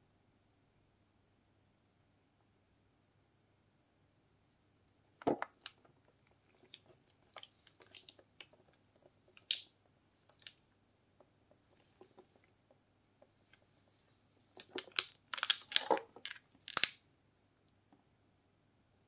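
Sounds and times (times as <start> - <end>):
plastic wrap crinkling: 5.2 - 9.7, 14.5 - 17.0.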